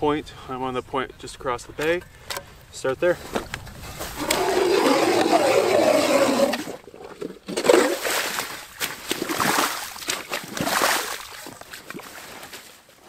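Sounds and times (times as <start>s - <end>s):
ice auger grinding into ice: 4.2s - 8.4s
auger splashing in slush: 4.2s - 12.8s.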